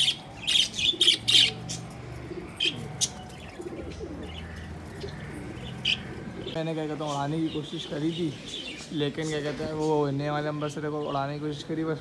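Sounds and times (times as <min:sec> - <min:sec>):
budgerigars chirping: 0:00.0 - 0:02.0, 0:02.6 - 0:10.1
pigeon cooing: 0:00.0 - 0:07.2.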